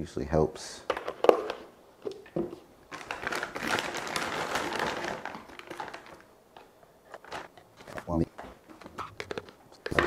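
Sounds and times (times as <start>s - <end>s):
plastic bag crinkling: 2.9s - 6.3s.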